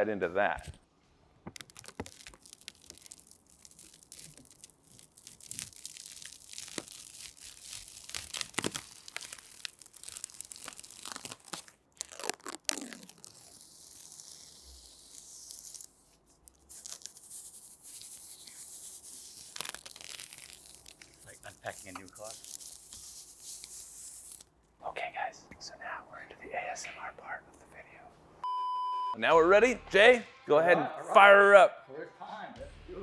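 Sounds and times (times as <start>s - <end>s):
plastic film being peeled off: 1.5s - 24.5s.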